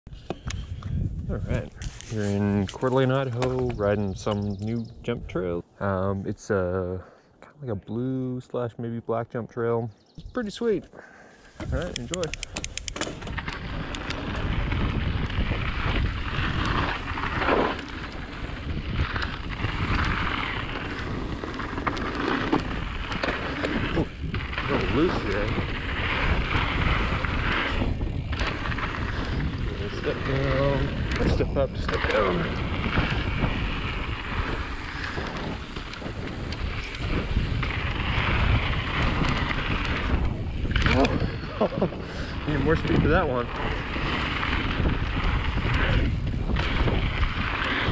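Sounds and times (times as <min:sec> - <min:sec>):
bike clicks and rattles: 0:00.1 - 0:01.0, 0:01.6 - 0:04.9, 0:11.5 - 0:47.9
wind buffeting microphone: 0:00.1 - 0:06.7, 0:11.4 - 0:47.9
tyres rumbling on dirt and gravel: 0:13.0 - 0:47.9.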